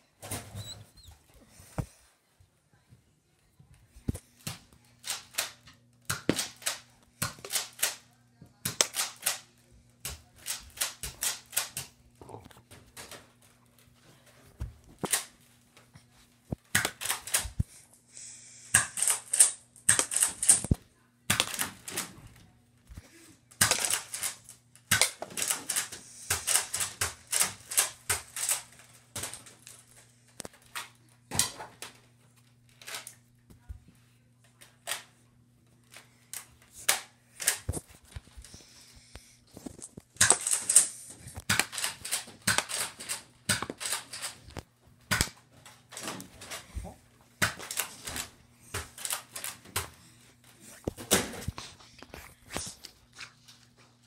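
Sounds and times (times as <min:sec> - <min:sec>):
sharp clicks and clacks: 0:39.7 - 0:46.6.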